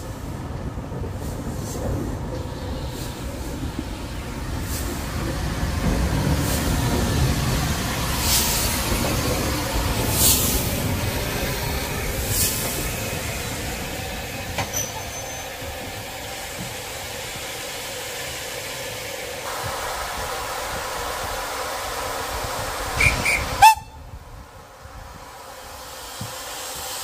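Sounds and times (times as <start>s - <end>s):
steam hissing: 0.0s - 27.0s
sharp steam whistle notes: 23.0s - 24.0s.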